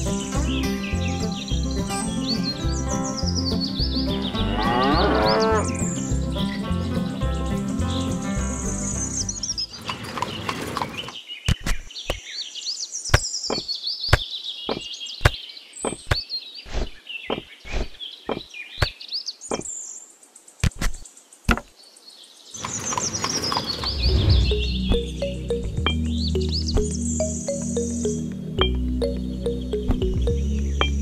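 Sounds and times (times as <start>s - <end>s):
music: 0.0s - 9.8s, 24.1s - 31.0s
birds chirping: 0.0s - 31.0s.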